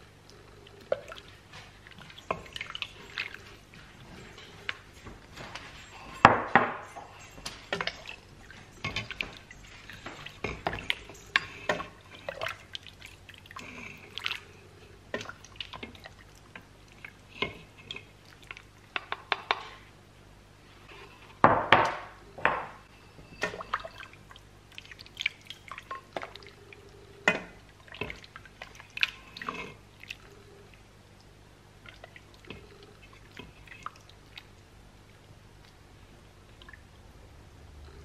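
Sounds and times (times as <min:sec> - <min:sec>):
liquid splashing and dripping: 0:00.7 - 0:04.8, 0:23.4 - 0:35.8, 0:36.4 - 0:36.9.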